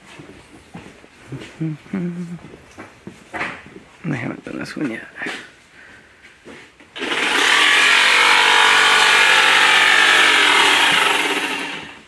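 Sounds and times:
power saw cutting wood: 7.0s - 12.0s.

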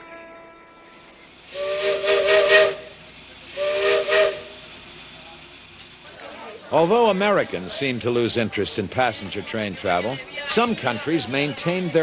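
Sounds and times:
steam locomotive whistle: 0.0s - 4.6s.

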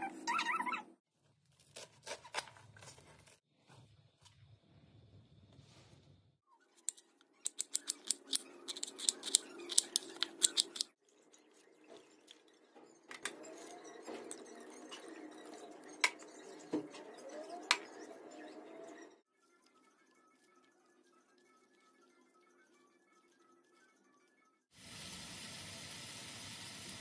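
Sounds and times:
handling sounds with clicks: 6.8s - 10.9s.

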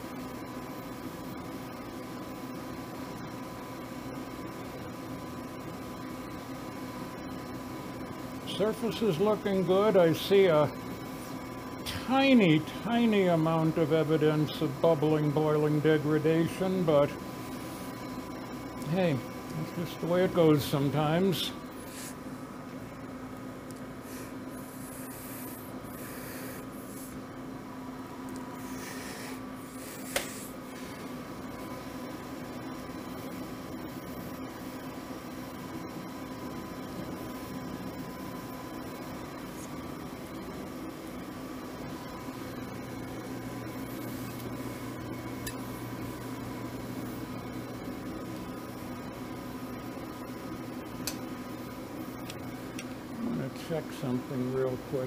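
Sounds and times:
torch burning with a hiss: 24.0s - 27.2s, 28.6s - 31.0s
sharp click: 51.0s - 51.2s.

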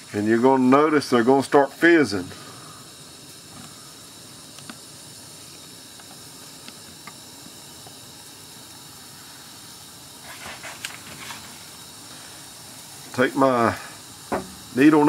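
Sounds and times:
bolts fizzing in solution: 12.6s - 15.0s.

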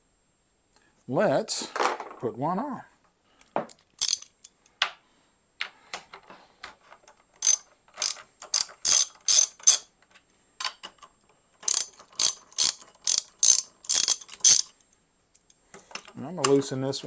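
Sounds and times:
ratchet wrench clicking: 4.0s - 4.3s, 7.4s - 9.9s, 11.6s - 14.7s.

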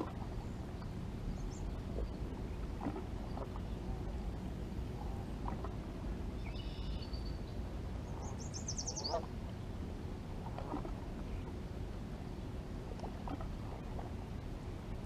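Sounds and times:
steady low rumble: 0.0s - 15.0s
birds calling: 6.2s - 9.8s.

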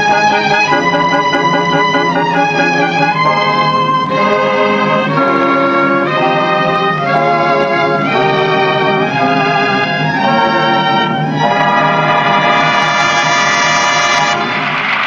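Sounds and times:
orchestral dance music: 0.0s - 15.0s
audience applause: 12.2s - 15.0s.

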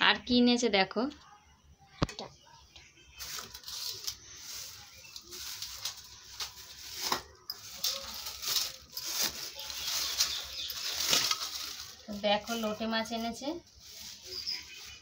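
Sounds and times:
plastic bag crinkling: 3.2s - 15.0s.

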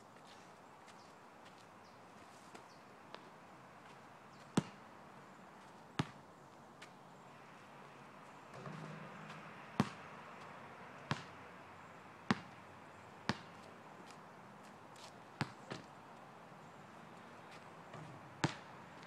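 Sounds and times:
basketball bouncing on asphalt: 3.1s - 4.8s, 6.0s - 6.2s, 8.5s - 11.4s, 12.2s - 14.2s, 15.0s - 16.0s, 17.4s - 19.0s.

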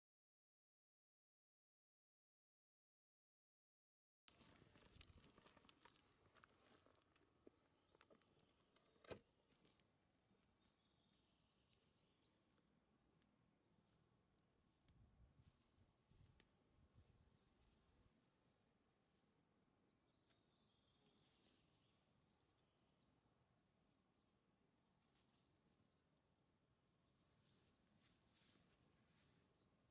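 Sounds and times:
handling rustle and clicks: 4.3s - 9.9s
forest ambience: 4.3s - 29.9s
songbird song: 4.3s - 29.9s.

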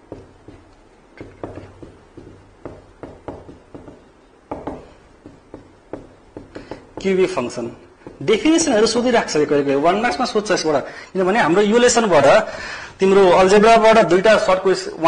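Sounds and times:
hand writing on a board: 0.0s - 7.3s.

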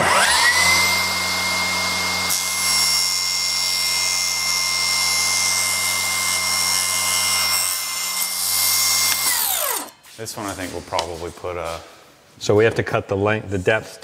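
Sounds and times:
table saw cutting wood: 0.0s - 10.0s.

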